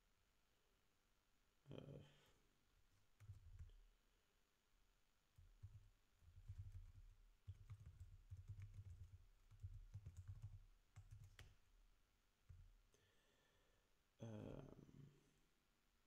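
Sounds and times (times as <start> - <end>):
typing on computer keyboard: 3.2 - 3.8, 5.4 - 11.6.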